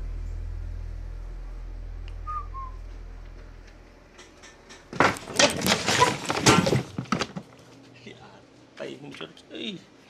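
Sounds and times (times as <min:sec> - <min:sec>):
low hum: 0:00.0 - 0:05.4.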